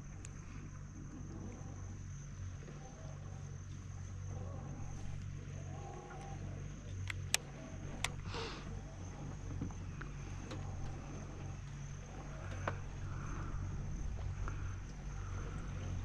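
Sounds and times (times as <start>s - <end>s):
low rumble: 0.0s - 16.0s
sharp clicks: 7.0s - 8.2s.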